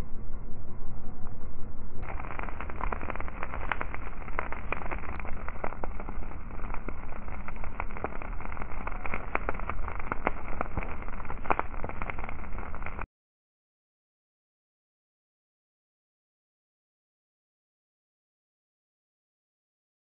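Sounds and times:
grass fire crackling and popping: 2.0s - 13.1s
steady rushing of flames: 2.0s - 13.1s.

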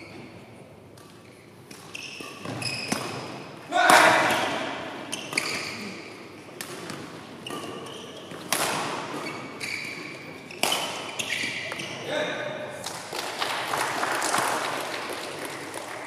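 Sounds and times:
shoes squeaking on court: 0.0s - 3.5s, 4.2s - 12.1s
rackets hitting shuttlecock: 0.9s - 5.9s, 6.5s - 12.0s.

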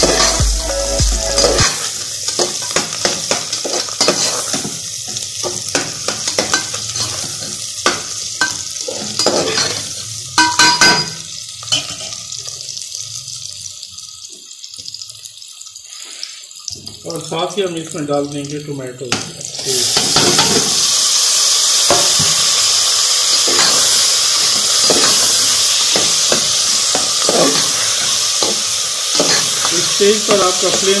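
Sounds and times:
onions sizzling in hot oil: 0.0s - 31.0s
spoon clanking on pot: 5.4s - 7.2s, 10.4s - 12.2s, 23.4s - 24.0s, 24.8s - 27.8s, 28.4s - 31.0s
spoon scraping pot: 23.3s - 31.0s.

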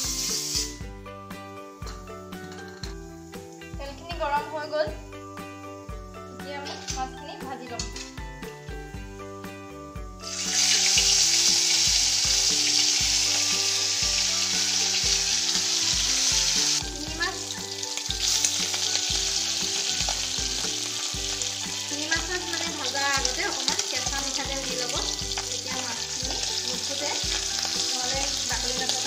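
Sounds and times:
fish sizzling in hot oil: 0.0s - 1.0s, 10.0s - 29.0s.

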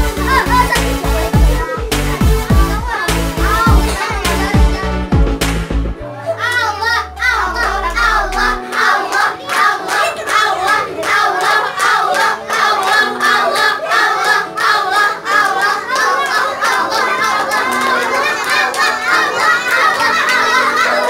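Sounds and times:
children shouting and chanting: 0.0s - 5.3s, 6.0s - 21.0s
hand claps: 5.4s - 5.8s, 8.4s - 14.4s, 15.6s - 20.6s.

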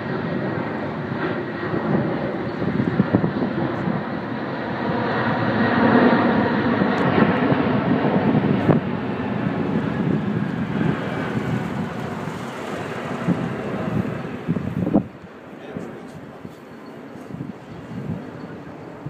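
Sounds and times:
jet engines roaring overhead: 0.0s - 19.0s.

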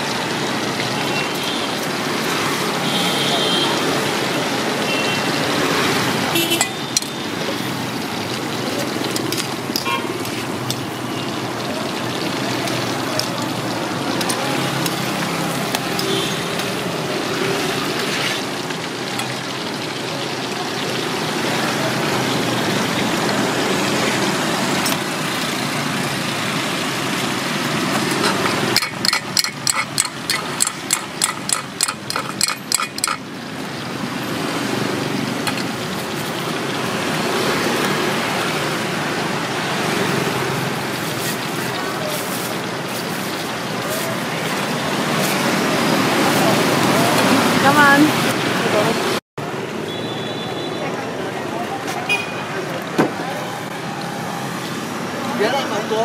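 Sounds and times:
street traffic hiss: 0.0s - 28.9s, 33.2s - 56.0s
food deep-frying sizzle: 0.0s - 50.4s, 52.1s - 56.0s
metal strainer tapping a pot: 28.6s - 33.2s.

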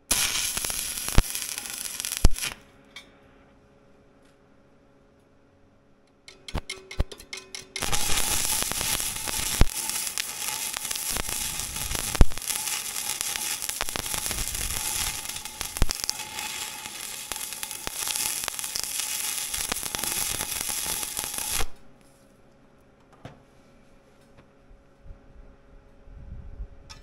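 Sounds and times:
welding arc crackling: 0.0s - 2.6s, 7.8s - 21.9s
welding rod scratching taps: 6.2s - 21.8s.

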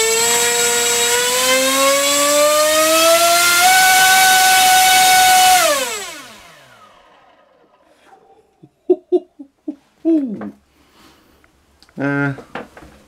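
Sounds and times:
electric motor whine: 0.0s - 7.8s.

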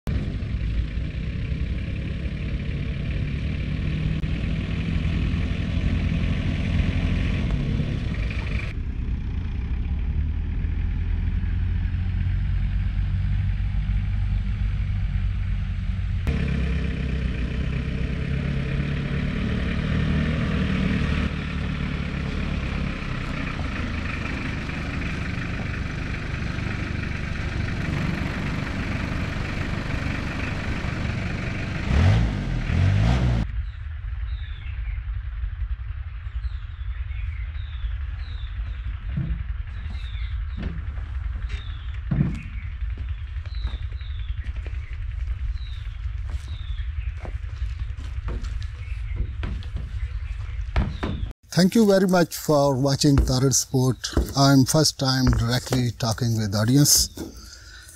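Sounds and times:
jeep engine running: 0.0s - 57.9s.

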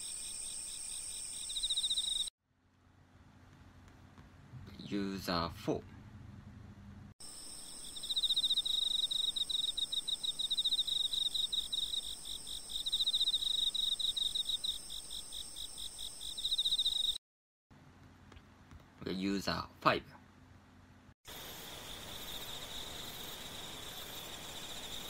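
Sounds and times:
high-pitched insect chirring: 0.0s - 2.3s, 7.2s - 17.2s
insects trilling: 0.0s - 2.3s, 7.2s - 17.2s, 21.3s - 25.0s.

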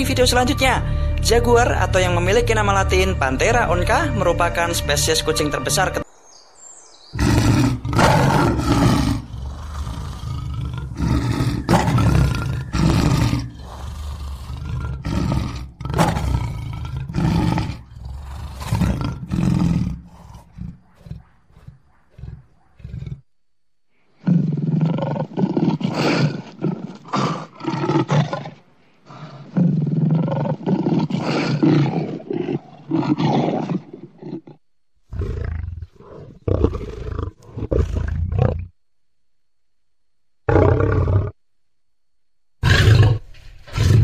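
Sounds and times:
jaguar roaring: 7.2s - 23.3s, 24.2s - 38.7s, 40.5s - 41.4s, 42.6s - 44.0s.

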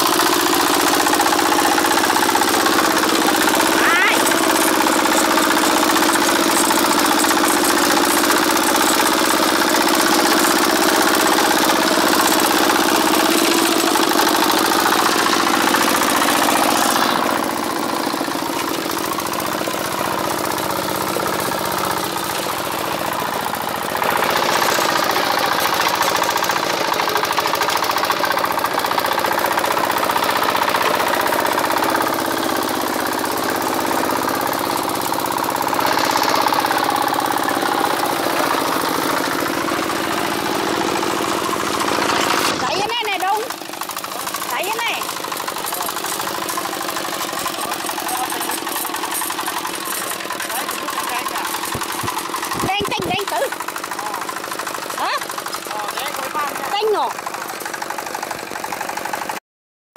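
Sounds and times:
diesel tractor engine running: 0.0s - 59.4s.

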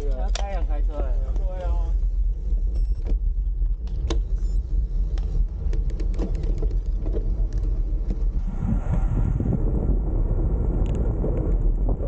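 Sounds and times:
bicycle clicks and rattles: 0.0s - 8.4s
bicycle ride rumble: 0.0s - 12.0s
wind and road noise: 0.0s - 12.0s.

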